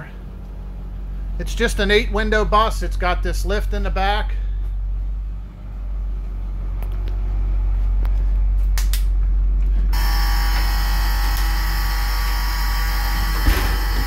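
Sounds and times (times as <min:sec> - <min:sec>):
door alarm buzzer: 0:09.9 - 0:14.0.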